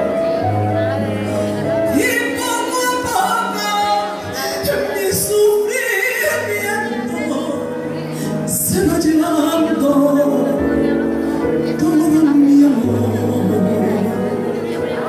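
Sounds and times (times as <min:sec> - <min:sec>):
keyboard accompaniment: 0:00.0 - 0:15.0
woman singing with vibrato: 0:01.9 - 0:07.8, 0:08.5 - 0:11.0, 0:11.7 - 0:15.0.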